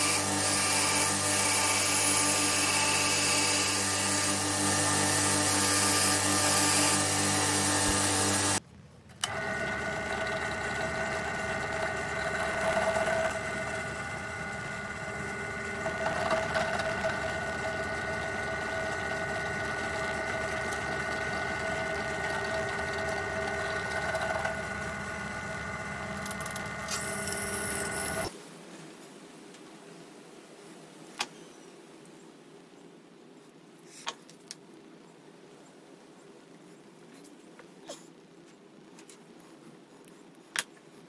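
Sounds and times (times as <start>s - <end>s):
drill press motor whining: 0.0s - 8.6s, 9.2s - 28.3s.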